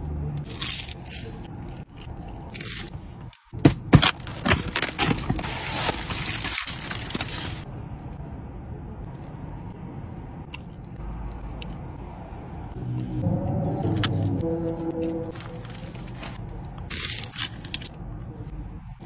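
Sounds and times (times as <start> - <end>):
aluminium foil crinkling: 4.2 - 7.7
low steady hum: 7.7 - 19.0.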